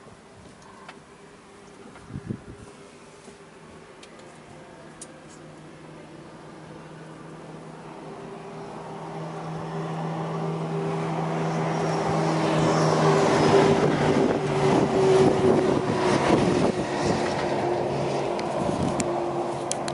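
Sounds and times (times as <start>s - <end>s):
engine droning: 0.2s - 19.9s.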